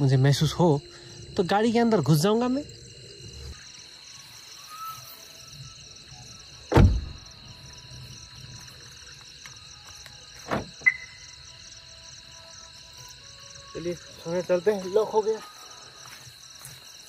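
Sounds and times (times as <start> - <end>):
crickets chirping: 0.0 - 17.0
car door locks clunk: 6.7 - 7.2
car door shutting: 6.7 - 7.3, 10.4 - 11.1.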